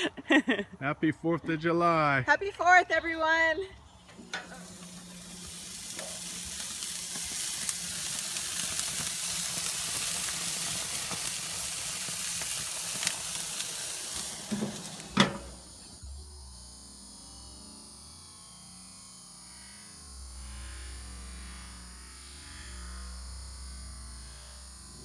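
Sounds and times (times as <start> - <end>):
sausages sizzling on grill: 3.8 - 25.0
metal grill lid knock: 14.5 - 15.5.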